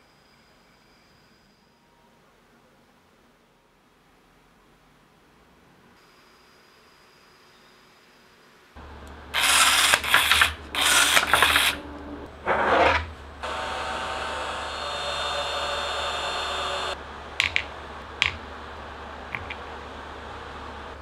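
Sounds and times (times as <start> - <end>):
rotary tool cutting: 9.4 - 11.8, 12.4 - 17.0.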